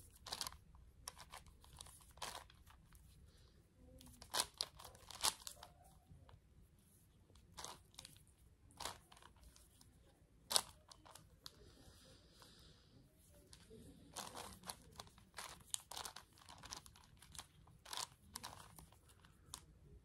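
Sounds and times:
puzzle cube clicking as turned: 14.2 - 19.6.

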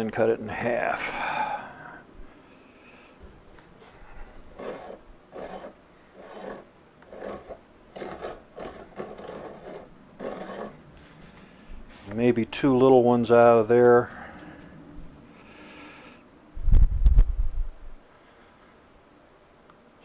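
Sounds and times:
dividers scratching wood: 4.1 - 12.3.

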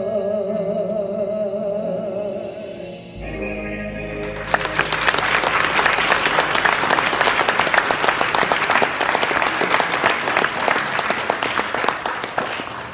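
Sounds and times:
congregation applauding: 4.1 - 12.9.

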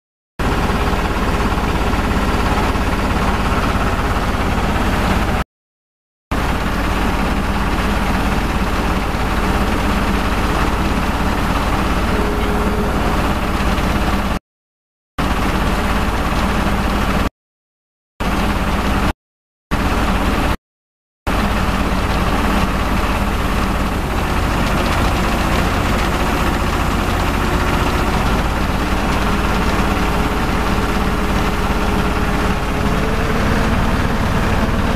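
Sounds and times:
drilling rig engine droning: 6.4 - 14.4, 21.3 - 34.9.

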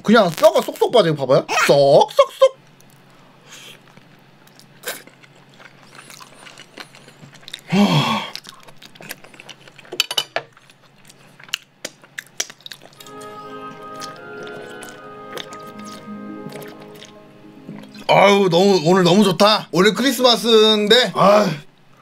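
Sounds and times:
chewing and lip smacks: 2.7 - 7.7, 8.3 - 18.1
person humming: 13.0 - 18.1
background music with held tones: 13.0 - 21.0.

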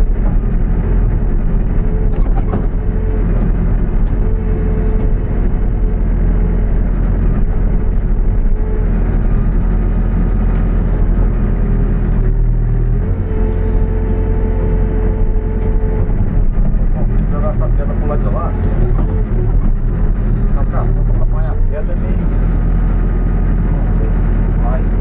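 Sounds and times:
diesel engine running: 0.0 - 25.0
higher whine: 12.0 - 22.7.

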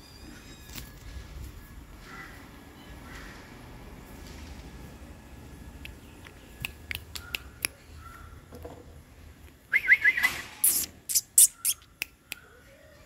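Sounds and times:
birds chirping: 5.4 - 8.5, 9.8 - 12.7.

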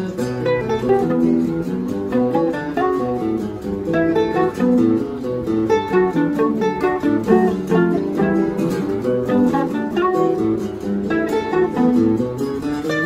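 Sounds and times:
guitar plucked bass and chords: 0.0 - 13.0
mandolin picking quick melody: 0.0 - 13.0.

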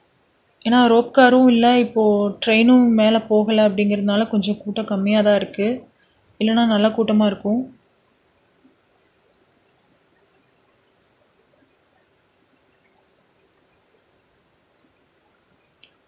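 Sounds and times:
faint high-pitched chirps: 4.8 - 16.0.

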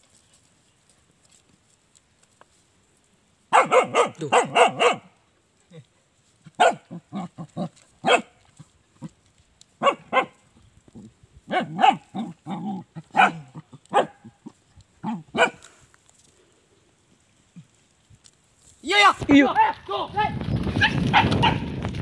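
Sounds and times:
dog barking: 3.5 - 5.1, 6.6 - 7.0, 8.0 - 8.4, 9.8 - 10.4, 11.5 - 14.4, 15.0 - 15.7, 20.8 - 21.7.

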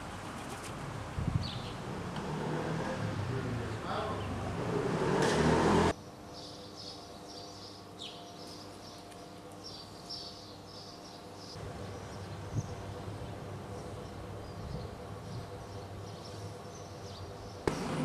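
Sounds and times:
car passing: 1.7 - 6.0
small birds chirping: 6.3 - 18.0.

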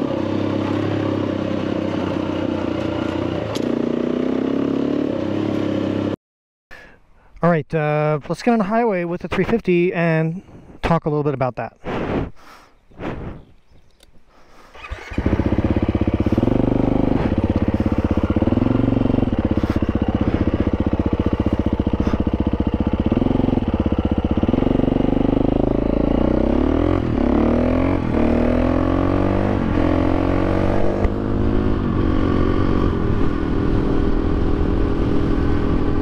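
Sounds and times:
motorcycle engine accelerating: 0.0 - 6.2, 14.7 - 36.0.

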